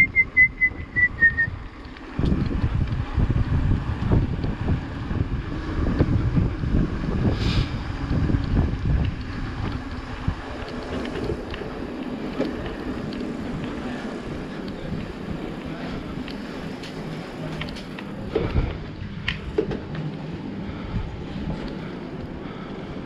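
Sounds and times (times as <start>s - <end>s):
wind buffeting microphone: 0.0s - 23.0s
bike rattling over rough trail: 1.4s - 23.0s
brief hiss: 7.4s - 7.7s.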